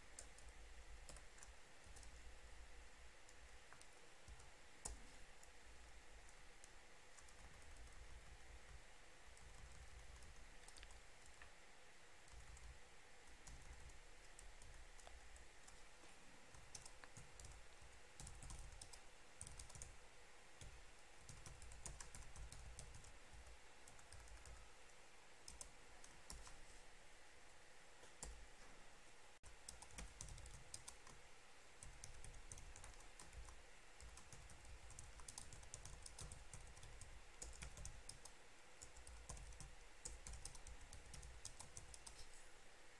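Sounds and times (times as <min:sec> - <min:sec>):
keyboard typing clicks: 0:00.2 - 0:02.2, 0:09.4 - 0:11.5, 0:12.3 - 0:15.8, 0:16.5 - 0:17.6, 0:18.2 - 0:20.0, 0:20.6 - 0:24.6, 0:25.5 - 0:26.6, 0:29.6 - 0:31.2, 0:31.8 - 0:42.2.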